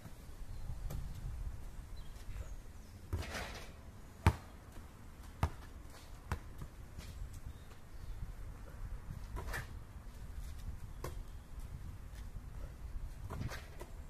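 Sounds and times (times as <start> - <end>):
ball bouncing on asphalt: 0.8 - 1.2, 4.2 - 7.1, 10.9 - 11.4, 13.2 - 14.0
basketball swishing through net: 13.2 - 13.9.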